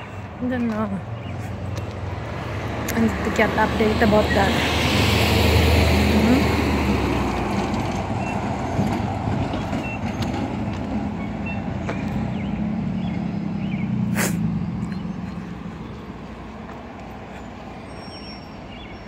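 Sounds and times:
short sharp hiss: 14.1s - 14.5s.

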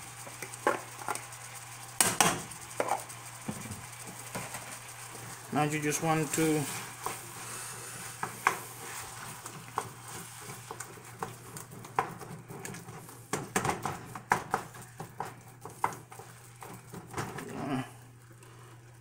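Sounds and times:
meat sizzling in oil: 0.0s - 12.3s.

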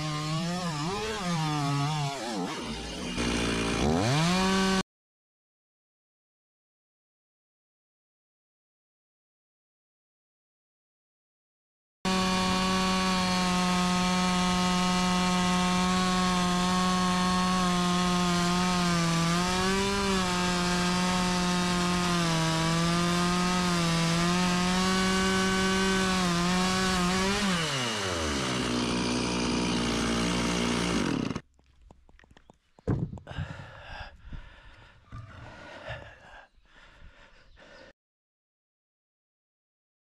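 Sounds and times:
chainsaw cutting log: 0.0s - 4.8s, 12.1s - 33.4s.

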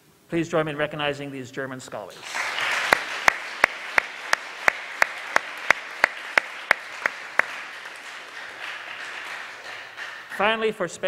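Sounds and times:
person clapping close by: 2.2s - 10.6s
audience applauding: 2.2s - 10.7s.

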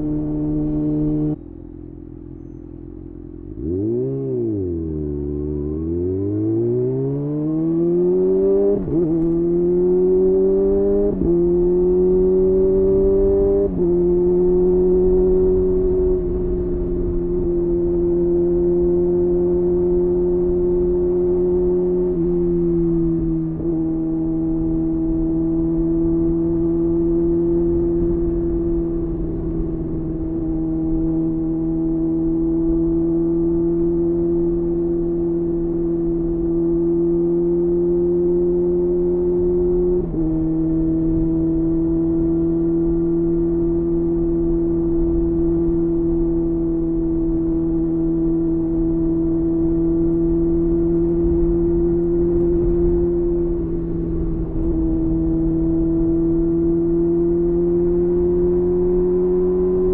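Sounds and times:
motorcycle engine revving: 0.0s - 59.9s.

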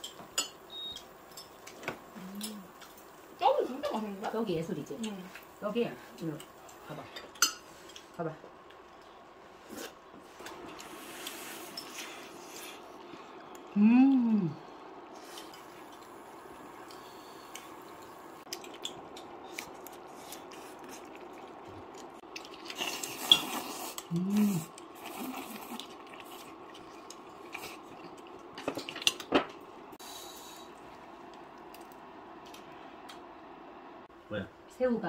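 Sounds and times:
faint steady hum: 0.0s - 35.0s
person humming: 2.1s - 2.8s, 13.7s - 14.7s, 24.1s - 24.7s
noodle slurp: 22.5s - 26.6s.

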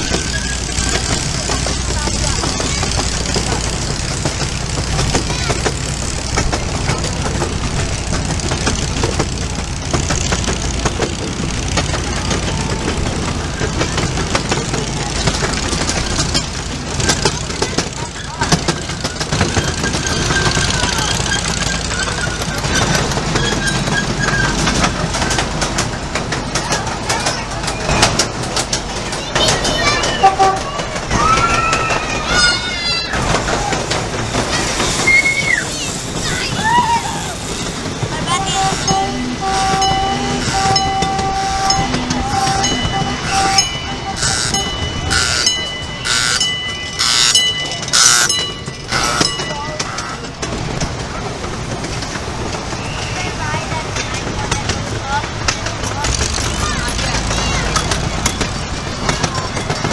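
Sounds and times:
railroad crossing bell clanging: 0.0s - 35.0s, 37.3s - 59.9s
miniature train rumbling on track: 0.0s - 59.9s
held tone: 38.3s - 50.3s.

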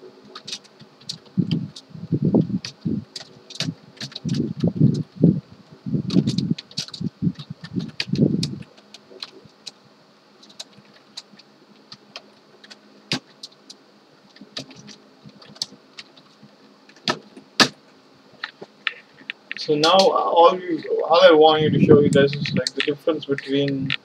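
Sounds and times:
keyboard and mouse clicks: 2.6s - 5.0s.

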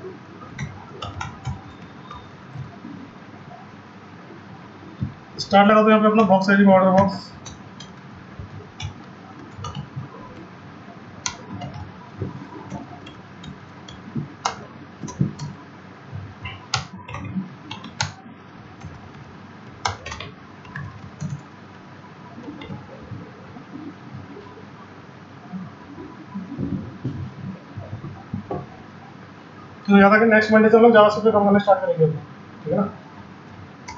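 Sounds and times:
computer keyboard typing: 0.4s - 3.6s, 4.8s - 15.6s, 16.2s - 21.6s, 22.2s - 23.8s.

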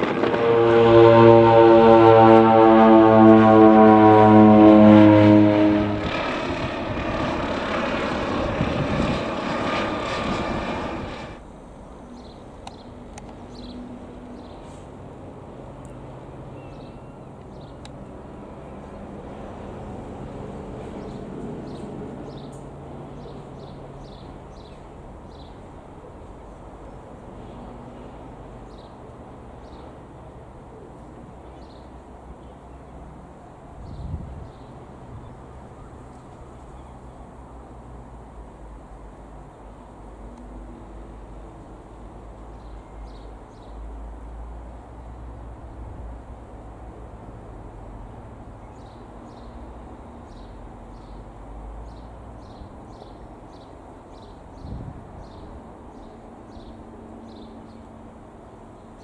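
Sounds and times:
aircraft engine drone: 0.0s - 31.0s
bird chirping: 16.5s - 17.8s.

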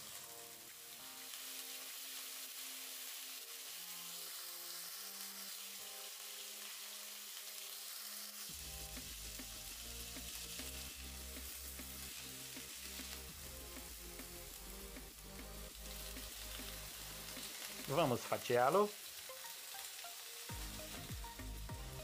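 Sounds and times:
steak sizzling in a frying pan: 0.0s - 22.0s
background music with bass and beat: 8.5s - 18.0s, 20.5s - 22.0s.

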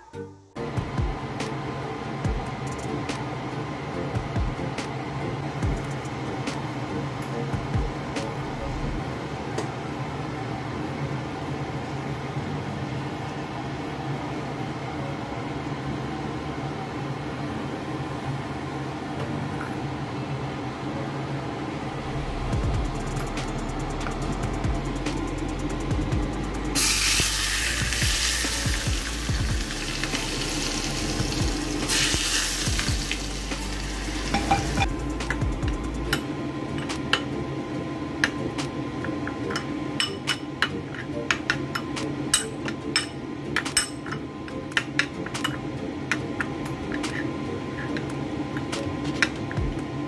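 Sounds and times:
hot oil sizzling: 26.8s - 35.3s.

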